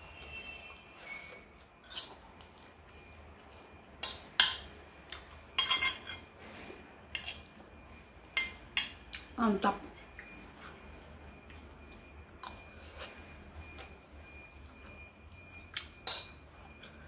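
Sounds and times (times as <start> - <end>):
metal spoon clinking against bowl: 4.0 - 4.7, 5.6 - 6.3, 7.2 - 7.5, 8.4 - 9.0.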